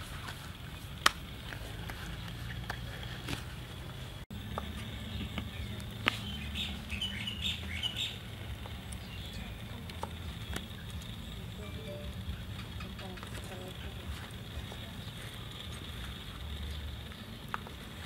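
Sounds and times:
low background hum: 0.0 - 18.0
small birds chirping: 1.9 - 18.0.

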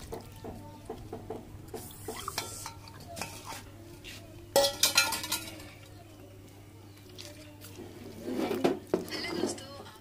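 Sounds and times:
utensils clattering against steel pan: 4.5 - 5.8.

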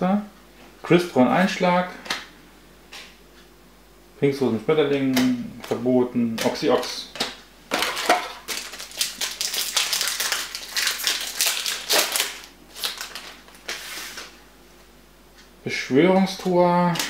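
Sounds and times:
foil wrapper crinkling: 7.8 - 14.3.

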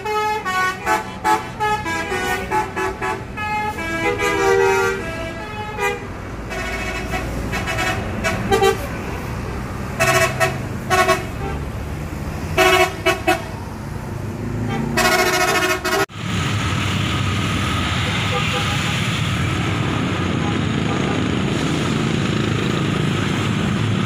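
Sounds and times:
bus horns blasting: 0.0 - 11.8, 12.4 - 13.7, 14.5 - 16.1, 18.0 - 19.1
bus engines rumbling: 0.0 - 24.0
street traffic: 0.0 - 24.0.

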